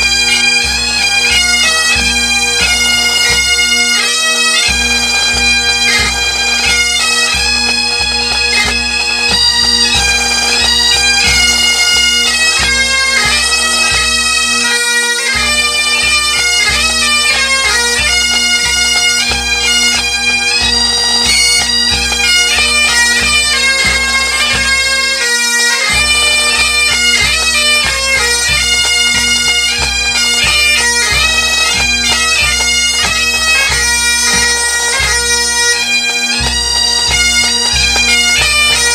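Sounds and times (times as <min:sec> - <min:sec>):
bagpipe melody with drone: 0:00.0 - 0:38.9.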